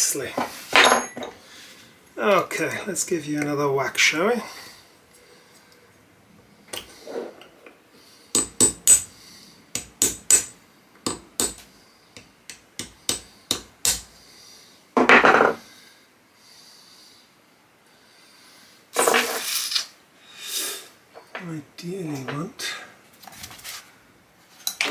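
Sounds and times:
hammer tapping metal punch: 0:09.8 - 0:11.6, 0:12.2 - 0:14.1.

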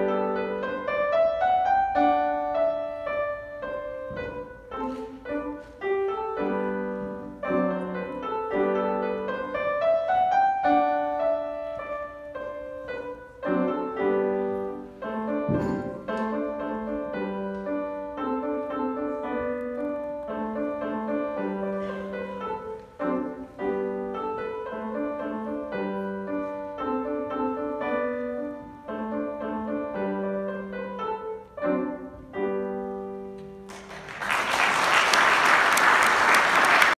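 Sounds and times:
solo grand piano melody: 0:00.0 - 0:34.4
loud applause: 0:33.7 - 0:36.9.

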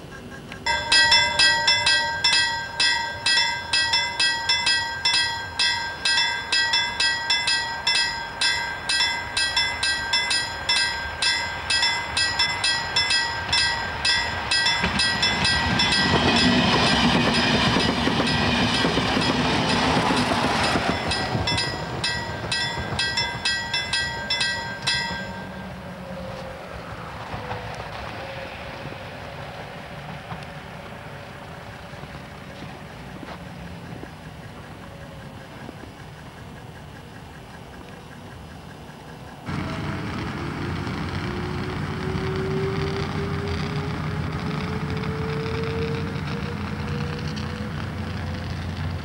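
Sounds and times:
train rushing past: 0:00.0 - 0:37.8, 0:38.5 - 0:49.0
level crossing warning bell: 0:00.6 - 0:26.4.

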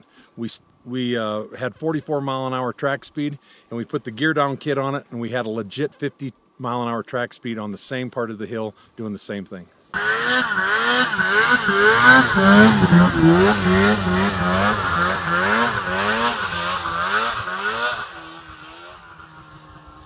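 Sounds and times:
snowmobile engine revving: 0:10.0 - 0:20.0.

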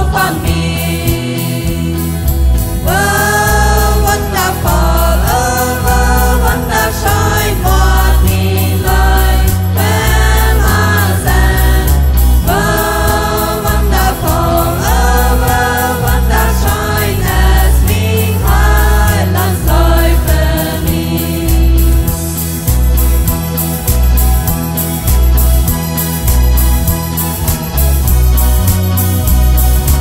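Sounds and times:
group singing gospel in harmony: 0:00.0 - 0:22.5
accordion: 0:00.0 - 0:30.0
electric bass: 0:00.0 - 0:30.0
guitars: 0:00.0 - 0:30.0
keyboard: 0:00.0 - 0:30.0.

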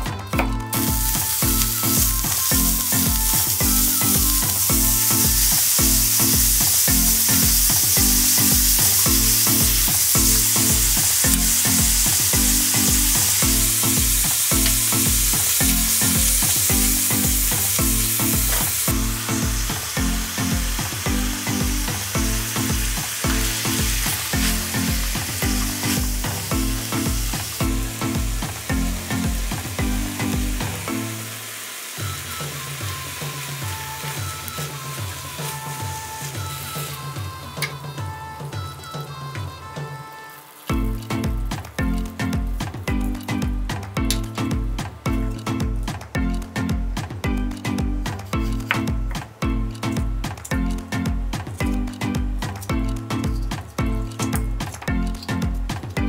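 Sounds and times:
background music with steady beat: 0:00.0 - 0:56.0
meat sizzling in a pan: 0:00.7 - 0:37.7, 0:40.2 - 0:43.2.

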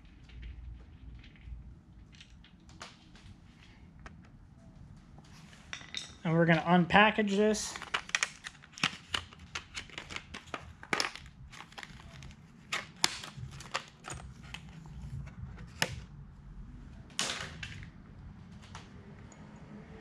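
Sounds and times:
packaging clicks and crinkles: 0:07.6 - 0:16.0
packaging rustle: 0:07.7 - 0:16.0.

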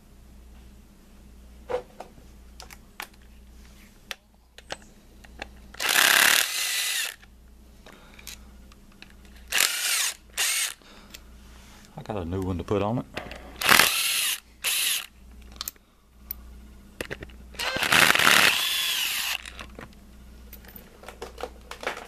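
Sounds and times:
power driver whirring: 0:05.8 - 0:07.3, 0:09.4 - 0:10.8, 0:13.6 - 0:15.7, 0:17.5 - 0:19.8.

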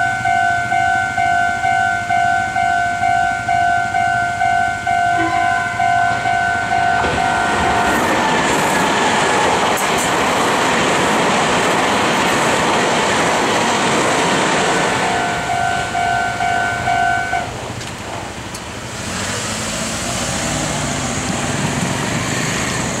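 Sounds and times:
crossing warning bell dinging: 0:00.0 - 0:17.9
passing road traffic: 0:00.0 - 0:23.0
train wheels clattering over rail joints: 0:06.0 - 0:16.0, 0:17.5 - 0:18.8.

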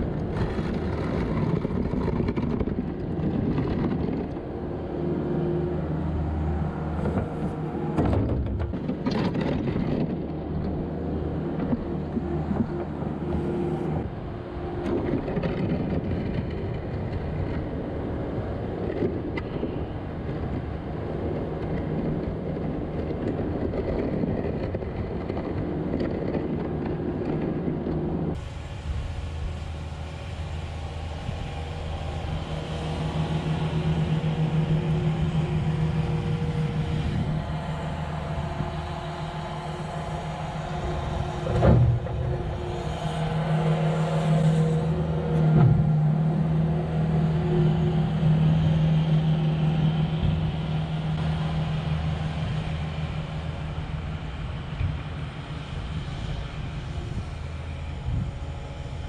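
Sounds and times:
loader engine running: 0:00.0 - 0:59.0.

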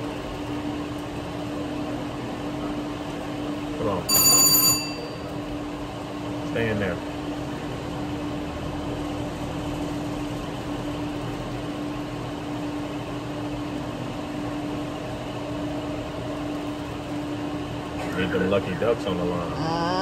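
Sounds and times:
slot machines humming: 0:04.1 - 0:05.6.

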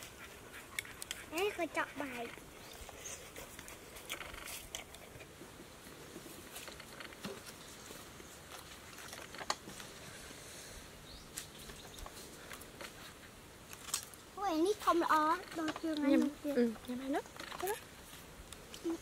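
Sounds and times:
fruit peeling rustling: 0:11.3 - 0:19.0.

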